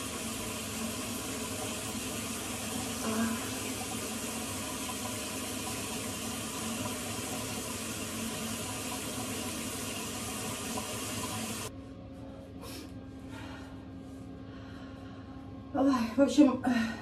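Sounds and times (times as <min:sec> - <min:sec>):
tap water running into sink: 0:00.0 - 0:11.7.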